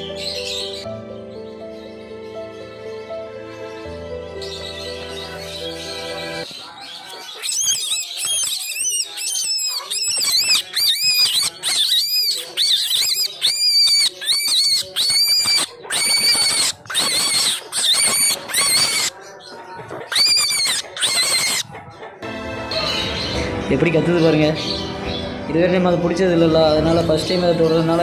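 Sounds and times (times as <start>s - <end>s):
baby rabbit screaming: 7.0s - 19.2s, 20.0s - 21.8s.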